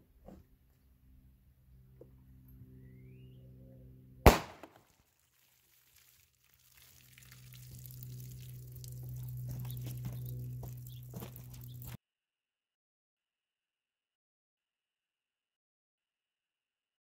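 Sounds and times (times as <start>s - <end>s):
pistol shot: 4.2s - 4.8s
faint low hum: 6.6s - 12.0s.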